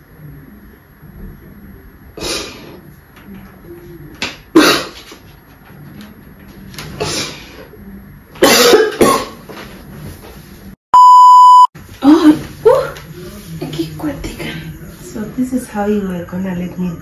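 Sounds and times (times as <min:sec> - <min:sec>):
woman coughing into cloth: 0:04.5 - 0:05.1, 0:08.4 - 0:09.4
censor bleep: 0:11.0 - 0:11.7.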